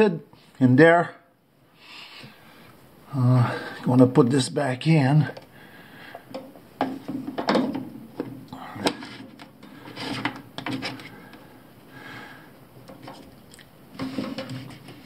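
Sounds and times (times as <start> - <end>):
plastic scraping and clicking: 6.2 - 11.4, 12.8 - 15.0.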